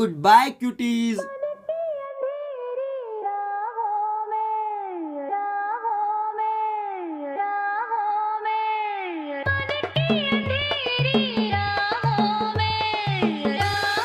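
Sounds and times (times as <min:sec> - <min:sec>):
drumbeat: 0:09.5 - 0:14.0.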